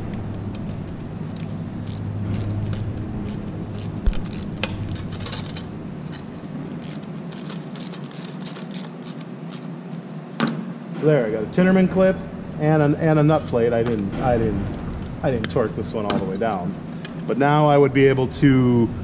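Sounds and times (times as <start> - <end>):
low steady hum: 0.0 - 19.0
screw clicking and scraping in metal: 1.4 - 5.6, 6.8 - 9.7.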